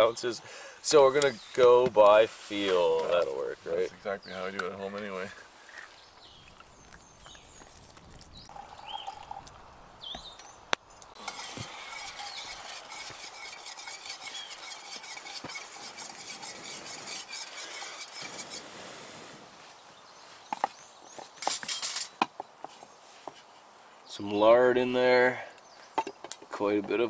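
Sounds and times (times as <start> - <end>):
spoon scraping metal cup: 11.2 - 18.7.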